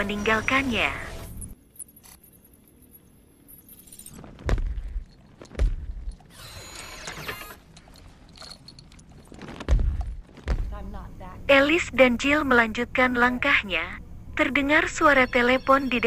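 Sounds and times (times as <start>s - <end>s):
metallic clinking: 1.2s - 6.4s, 7.3s - 9.4s
heavy booming footfalls: 4.3s - 6.1s, 9.5s - 10.9s
mechanical whirring: 6.0s - 7.8s.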